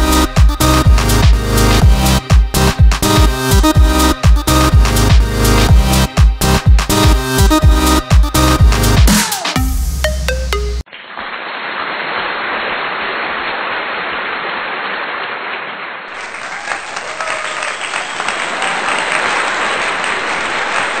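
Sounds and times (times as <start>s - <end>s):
electronic music: 0.0s - 10.9s
crowd applause: 11.9s - 21.0s.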